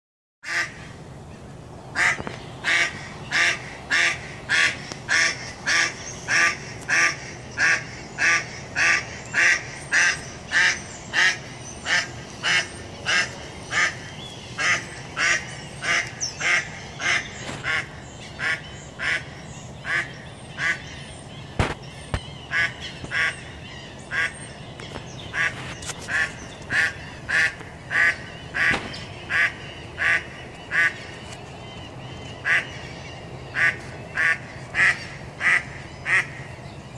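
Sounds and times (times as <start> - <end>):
duck quacking: 0.4 - 0.8, 2.0 - 14.0, 14.6 - 20.9, 22.5 - 23.4, 24.1 - 24.3, 25.3 - 31.0, 32.4 - 32.8, 33.5 - 36.4.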